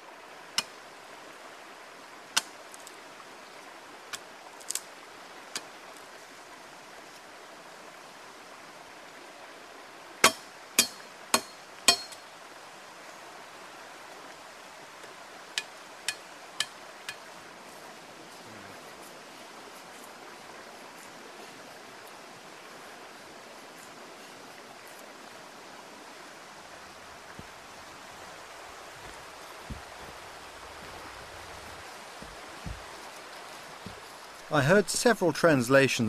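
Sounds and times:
steady background hiss: 0:00.0 - 0:36.0
machete chopping wood: 0:10.2 - 0:12.2.

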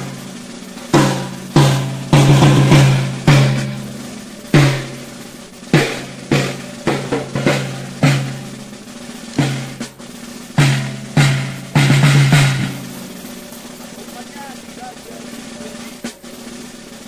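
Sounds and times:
field drum beating: 0:00.0 - 0:17.0.

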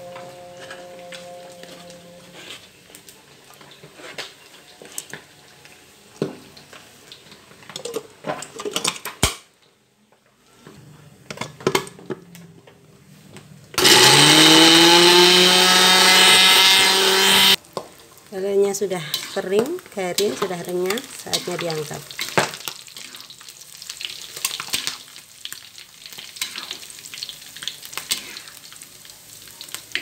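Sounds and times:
electric blender whining: 0:13.8 - 0:17.6.

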